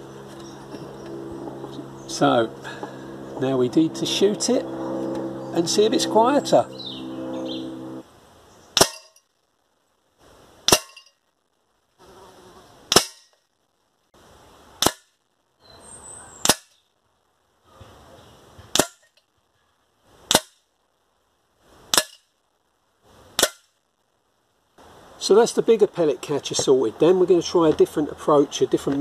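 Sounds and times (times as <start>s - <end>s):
air rifle shots: 12.9s - 13.3s.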